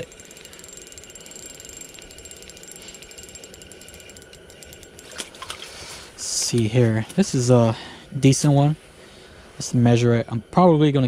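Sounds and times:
fishing reel ticking: 0:00.0 - 0:08.7.

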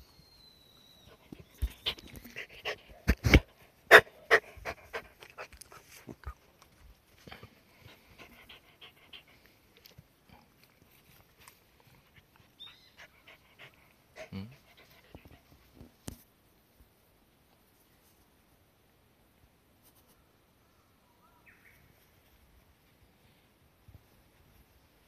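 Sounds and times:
dog panting: 0:01.2 - 0:06.3, 0:07.8 - 0:09.6, 0:12.0 - 0:15.5.

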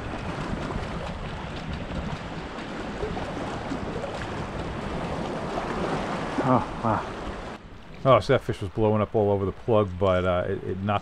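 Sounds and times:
wind buffeting microphone: 0:00.0 - 0:08.6
small waves lapping: 0:00.0 - 0:10.8.

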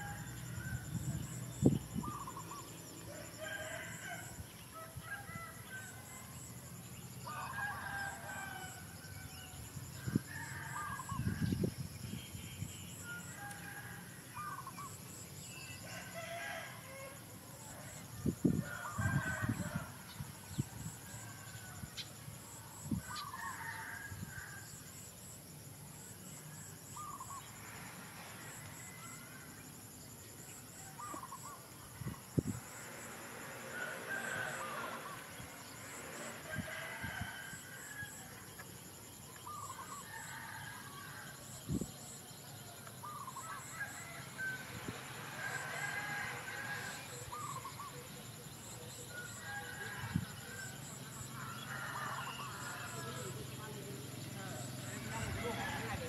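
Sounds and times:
rooster crowing: 0:00.0 - 0:01.0, 0:03.1 - 0:06.5, 0:07.2 - 0:09.2, 0:15.8 - 0:18.0, 0:18.6 - 0:20.0, 0:23.0 - 0:24.7, 0:27.9 - 0:29.5, 0:33.4 - 0:38.5, 0:39.7 - 0:41.6, 0:43.3 - 0:47.8, 0:49.0 - 0:53.4, 0:54.4 - 0:56.0.

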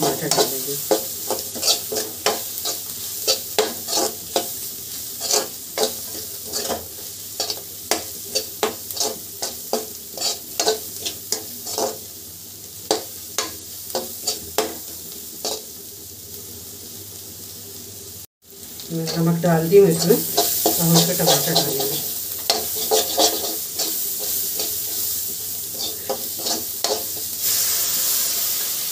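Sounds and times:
metal spoon scraping a pan: 0:00.0 - 0:12.0, 0:19.1 - 0:28.2
food sizzling: 0:00.0 - 0:28.9.

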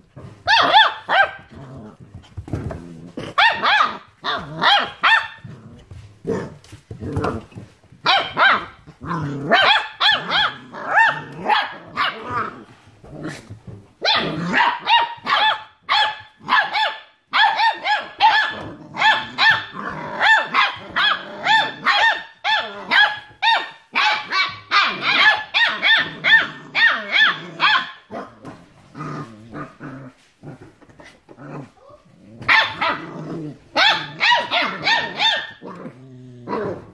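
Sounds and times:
puppy yapping: 0:00.5 - 0:01.5, 0:32.4 - 0:33.0, 0:33.7 - 0:35.7.

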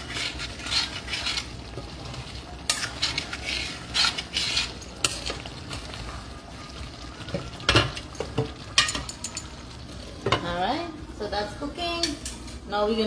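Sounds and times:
metal spoon scraping a pan: 0:00.0 - 0:06.2
sauce sizzling in a pan: 0:00.0 - 0:11.7.

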